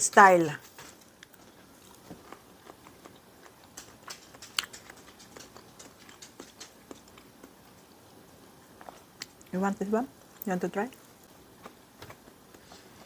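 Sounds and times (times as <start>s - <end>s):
person chewing food: 1.0s - 9.5s, 11.0s - 13.0s
mouth clicks and smacks: 1.8s - 7.6s.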